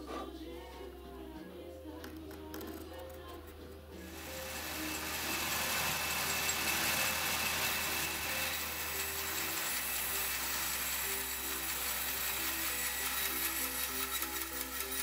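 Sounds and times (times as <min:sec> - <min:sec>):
background music: 0:00.0 - 0:15.0
band saw cutting wood: 0:04.0 - 0:15.0.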